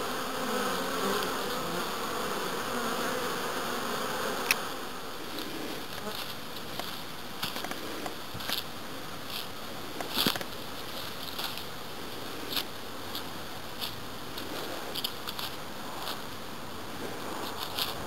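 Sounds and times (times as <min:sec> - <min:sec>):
bees buzzing: 0:00.0 - 0:06.5.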